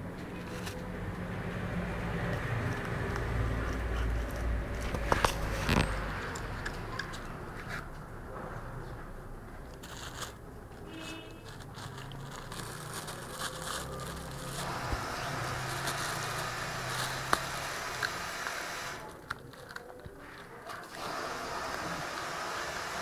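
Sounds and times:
cat crunching bones: 0.2s - 8.0s, 11.5s - 21.9s
plastic bag crinkling: 9.7s - 22.0s.

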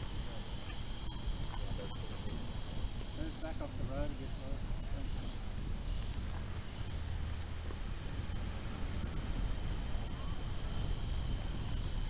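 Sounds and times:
high-pitched insect drone: 0.0s - 12.0s
wind rumble on microphone: 0.0s - 12.0s.

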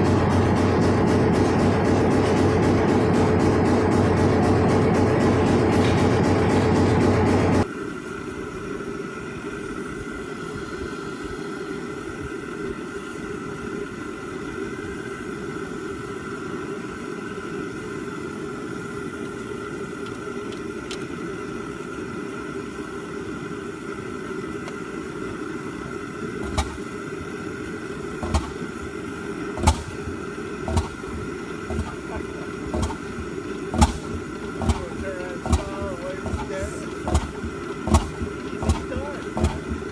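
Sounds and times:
engine firing beats: 0.0s - 7.7s, 26.2s - 39.9s
steady low hum: 0.0s - 39.9s.

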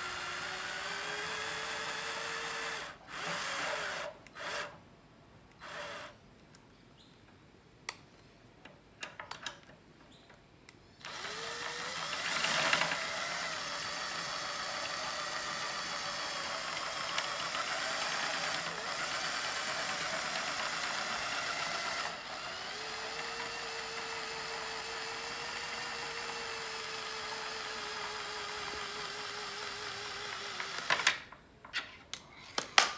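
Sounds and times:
power drill running: 0.0s - 4.7s, 5.6s - 6.2s, 11.0s - 31.2s.

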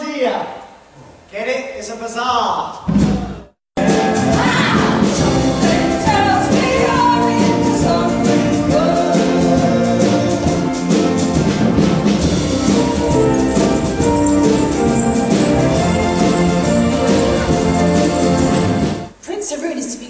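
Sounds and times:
cast singing together: 3.8s - 11.2s
instrumental accompaniment: 3.8s - 19.2s.

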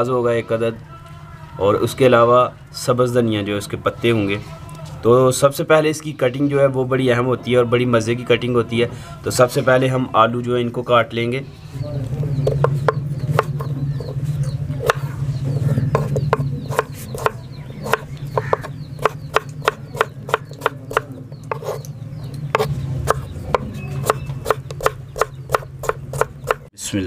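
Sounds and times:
knife chopping on wooden board: 12.4s - 14.2s, 14.8s - 21.8s, 22.5s - 26.7s.

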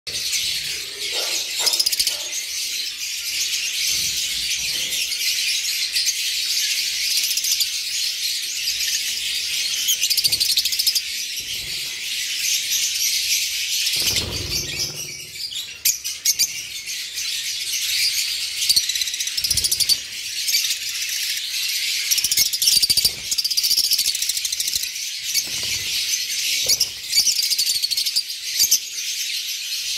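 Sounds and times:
lovebirds chattering: 0.1s - 6.2s
wings fluttering: 13.8s - 15.4s.

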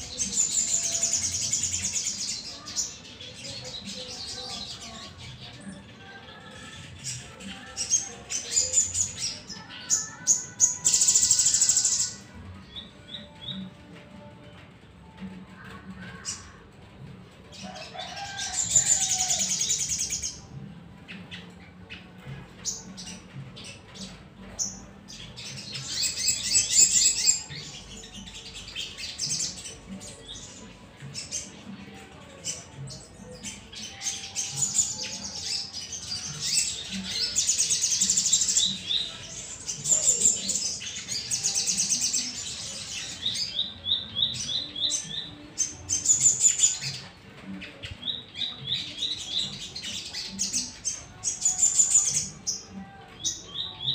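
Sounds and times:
birds trilling: 17.5s - 53.9s.

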